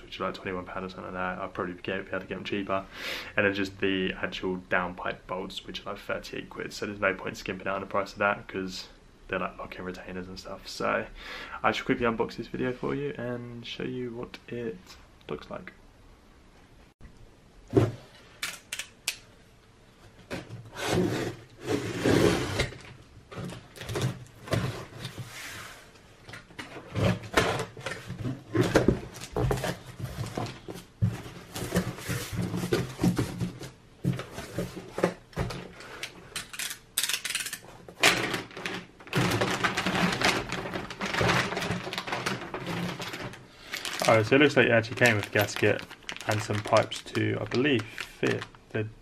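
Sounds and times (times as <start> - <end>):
cardboard flaps rustling: 26.7 - 35.8, 38.0 - 48.6.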